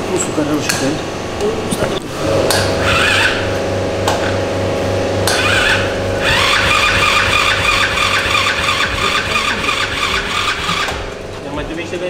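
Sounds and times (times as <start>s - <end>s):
small engine cranking and running: 5.4s - 11.7s.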